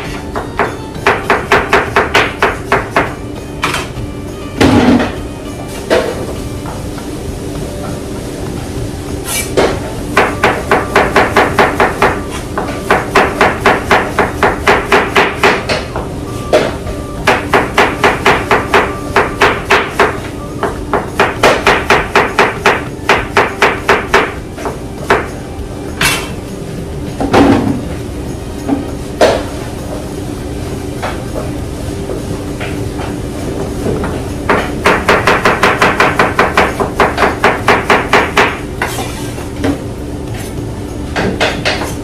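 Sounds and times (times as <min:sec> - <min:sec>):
steady hum: 0:00.0 - 0:42.0.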